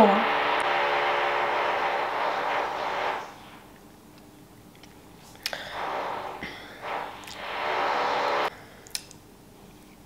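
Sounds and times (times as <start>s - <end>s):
machine whirring and humming: 0.0s - 3.8s, 5.5s - 8.5s.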